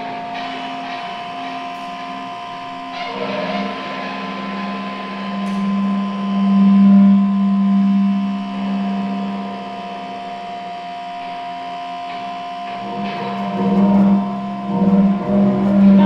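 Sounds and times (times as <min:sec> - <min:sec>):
amplified guitar drone: 0:00.0 - 0:16.0
wavering warbling tones: 0:12.2 - 0:16.0.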